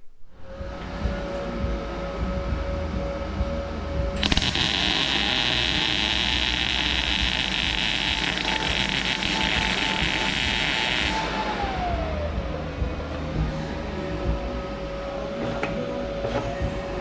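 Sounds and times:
welder arc crackling: 4.2s - 11.4s.

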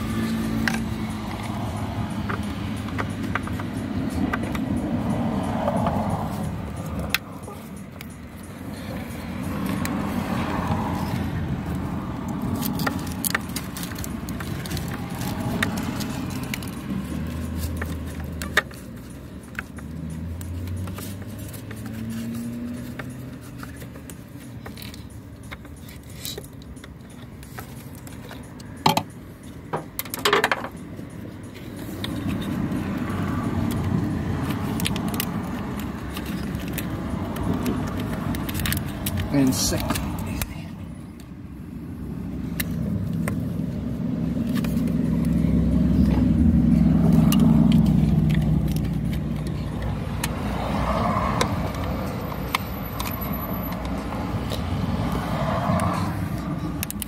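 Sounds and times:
screwdriver clicks and taps: 2.1s - 4.7s, 56.8s - 57.0s
plastic and metal handling: 5.7s - 55.3s.

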